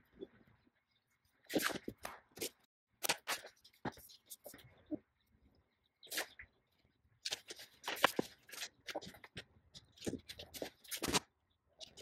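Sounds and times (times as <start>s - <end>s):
fabric and paper rustling: 7.3s - 11.2s.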